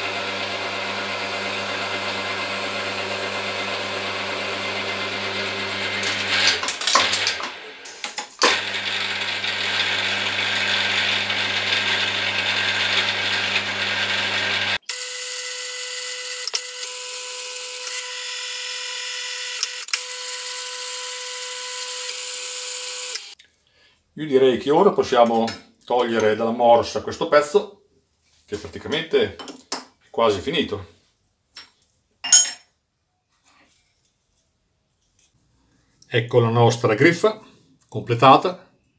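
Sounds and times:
mill-drill motor humming: 0.0s - 23.4s.

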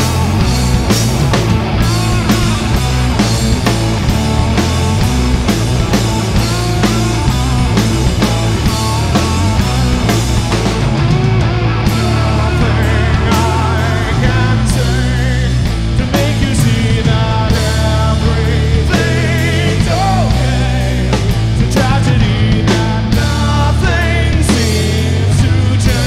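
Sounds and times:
drum kit with crashing cymbals: 0.0s - 26.0s
electric guitar: 0.0s - 26.0s
man singing: 11.8s - 26.0s.

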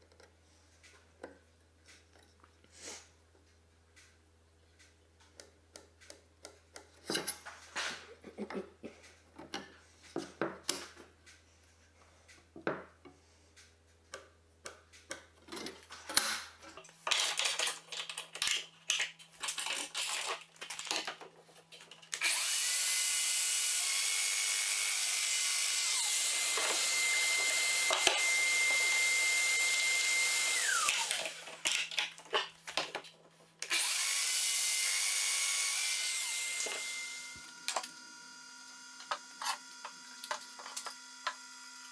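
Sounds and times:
wood and clamps clicking: 29.8s - 33.9s.

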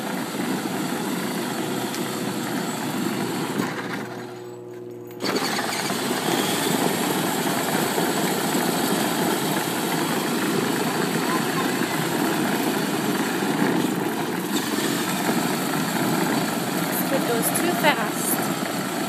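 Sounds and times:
electric toy motor whirring: 5.2s - 9.5s
plastic wheels rumbling on asphalt: 5.2s - 19.0s.

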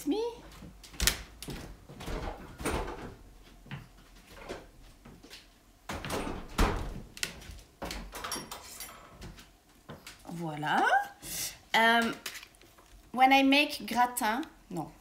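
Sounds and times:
door opening and shutting: 1.0s - 3.2s, 5.9s - 8.7s.

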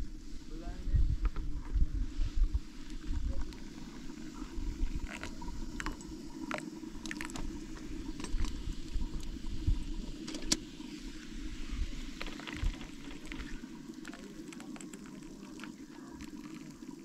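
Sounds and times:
wind rumble on microphone: 0.0s - 6.1s, 7.2s - 10.3s
tea pouring into glasses: 2.9s - 9.3s, 12.2s - 17.0s.

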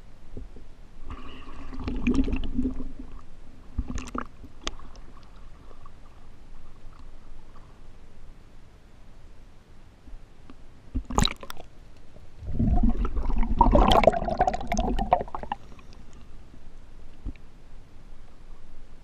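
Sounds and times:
water sloshing and gurgling: 1.0s - 7.9s, 10.9s - 16.0s
low hum: 11.7s - 19.0s.

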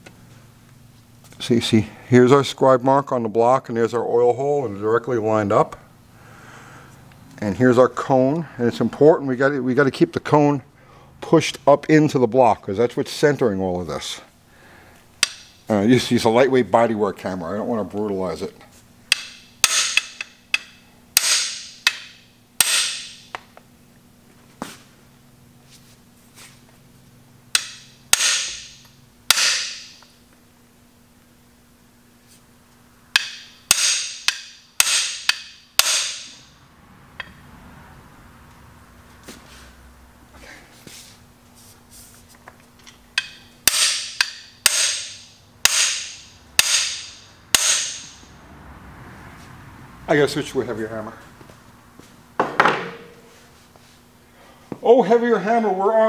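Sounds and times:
hammer striking metal bar: 15.2s - 15.6s, 19.1s - 23.4s, 27.5s - 30.1s, 33.1s - 36.5s, 43.2s - 48.3s.

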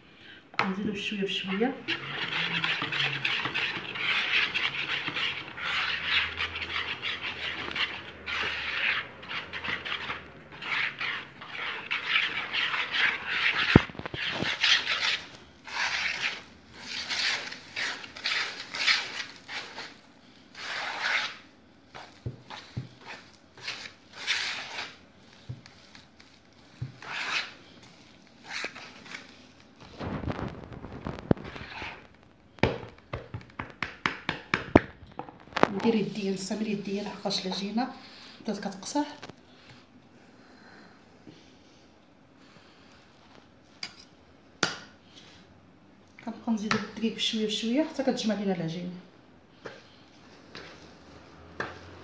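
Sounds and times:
utensil scraping dough in bowl: 0.6s - 32.2s, 35.6s - 39.3s.

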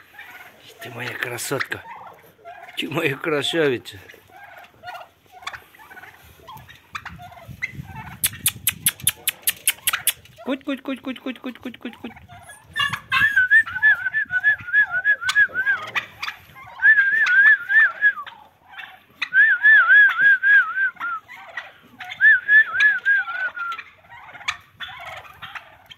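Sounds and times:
puppies whining: 12.2s - 15.8s.

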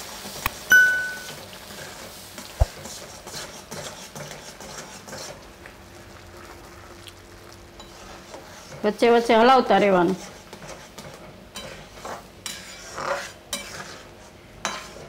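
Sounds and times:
light sizzle: 0.0s - 15.0s
ladle clinking on pan: 0.7s - 1.4s
ladle scraping pan: 0.8s - 5.5s, 10.1s - 15.0s.

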